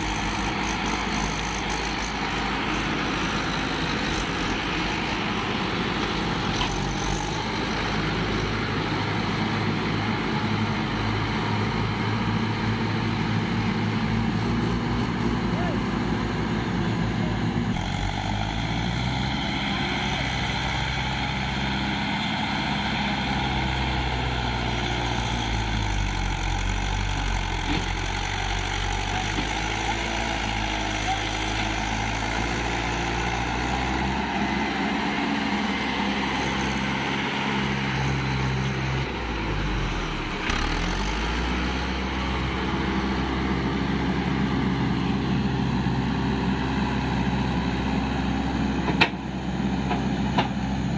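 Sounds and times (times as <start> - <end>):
tractor engine labouring: 0.0 - 50.9.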